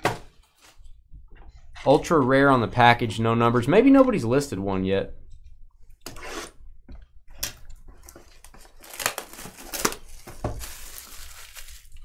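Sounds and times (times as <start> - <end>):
cardboard packaging tearing and crinkling: 8.0 - 12.0.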